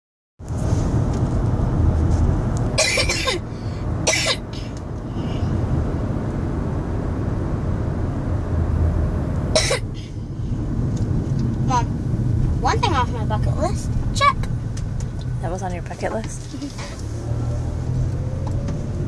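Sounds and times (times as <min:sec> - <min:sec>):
car road noise rumble: 0:00.4 - 0:19.0
boy coughing: 0:02.8 - 0:04.7, 0:09.6 - 0:10.1.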